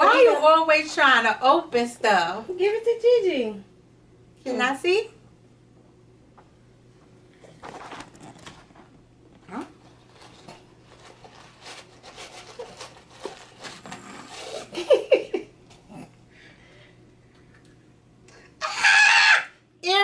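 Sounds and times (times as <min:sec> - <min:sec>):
wrapping paper crinkling and tearing: 0:09.8 - 0:14.8.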